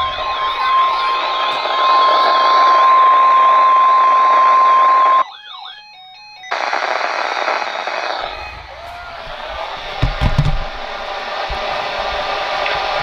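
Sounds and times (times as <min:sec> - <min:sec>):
radio static hiss: 0:00.0 - 0:05.2, 0:06.5 - 0:13.0
high warbling alert siren: 0:00.0 - 0:09.9
weather radio alarm tone: 0:00.0 - 0:13.0.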